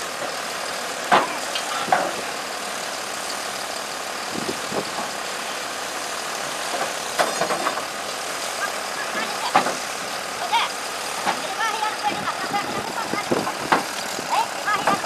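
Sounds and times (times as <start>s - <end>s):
heavy machine engine idling: 0.0s - 15.0s.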